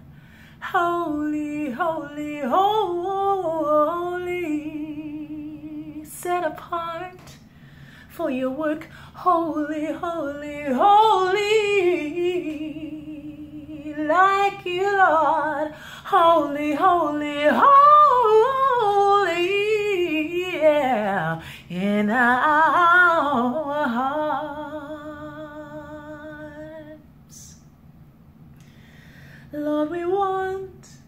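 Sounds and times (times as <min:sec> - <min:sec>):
woman singing wordlessly: 0:00.6 - 0:07.4, 0:08.1 - 0:27.6, 0:29.5 - 0:31.0.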